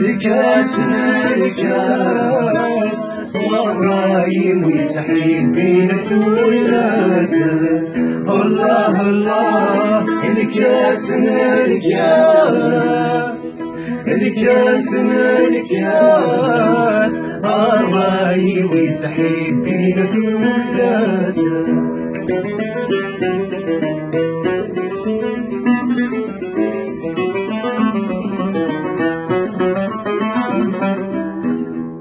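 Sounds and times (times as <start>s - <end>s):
man singing solo: 0.0s - 21.9s
woman and man singing: 0.0s - 22.1s
plucked lute: 0.0s - 32.0s.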